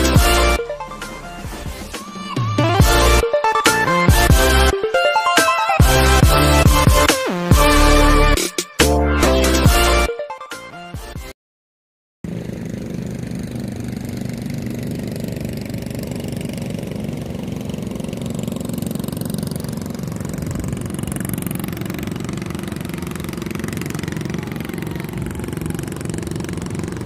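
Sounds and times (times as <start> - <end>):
boat outboard engine running: 12.3 - 27.0.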